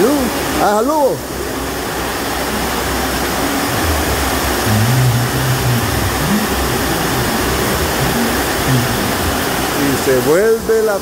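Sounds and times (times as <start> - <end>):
heavy rain on a metal roof: 0.0 - 11.0.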